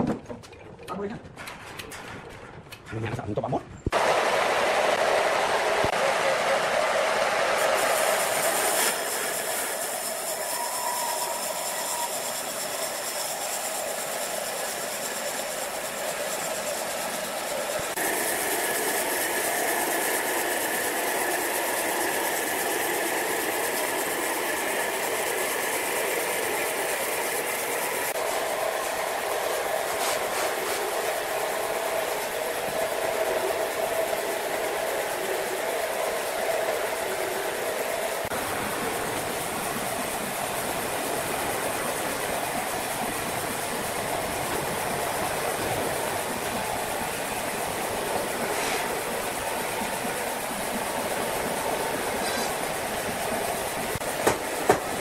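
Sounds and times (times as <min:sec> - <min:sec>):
band saw cutting log: 0:04.0 - 0:38.4, 0:48.4 - 0:49.0.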